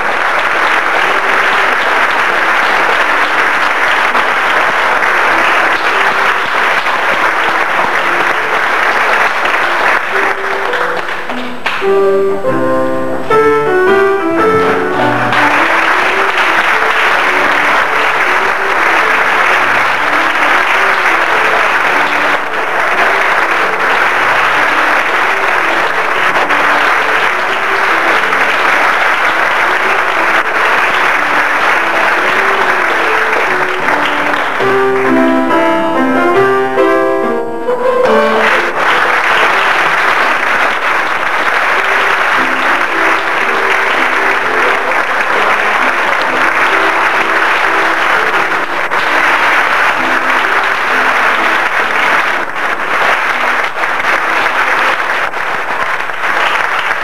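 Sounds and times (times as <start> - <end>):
audience applauding: 0.0 - 12.2, 13.9 - 36.9, 38.0 - 57.0
instrumental music: 0.0 - 54.9.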